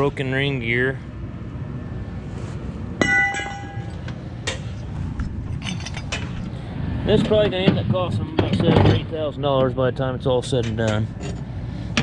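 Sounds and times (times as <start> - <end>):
steel gear clanking on scrap metal: 3.0 - 4.8, 5.5 - 6.4.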